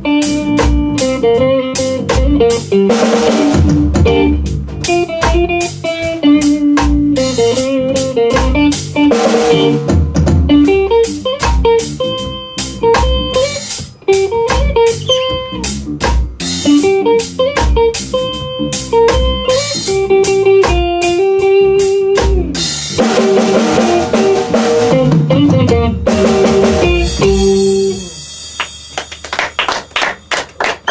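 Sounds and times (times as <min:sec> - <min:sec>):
bass guitar: 0:00.0 - 0:29.4
drum kit beat: 0:00.0 - 0:30.9
electric guitar: 0:00.0 - 0:30.9.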